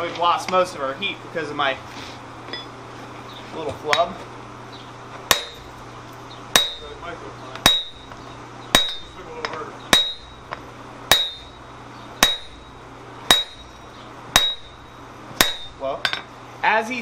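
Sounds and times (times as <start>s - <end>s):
sledgehammer striking metal tool: 5.3s - 5.7s, 6.5s - 7.0s, 7.6s - 10.5s, 11.1s - 11.6s, 12.2s - 16.3s.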